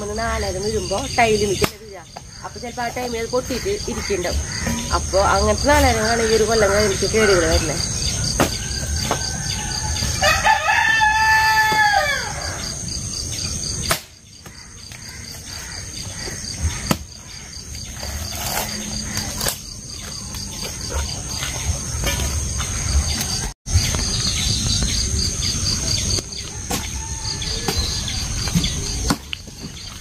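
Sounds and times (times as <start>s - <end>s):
rooster crowing: 8.5s - 12.8s, 26.4s - 28.4s.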